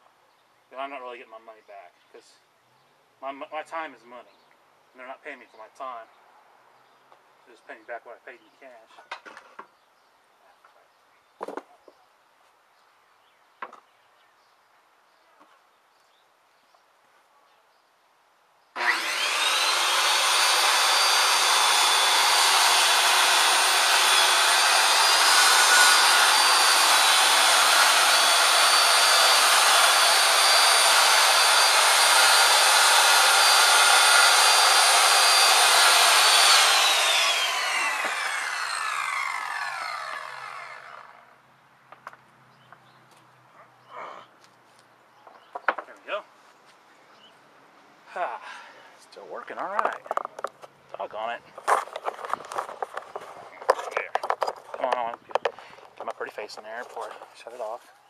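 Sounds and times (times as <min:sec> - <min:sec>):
circular saw cutting wood: 0:18.8 - 0:41.3, 0:51.6 - 0:57.8.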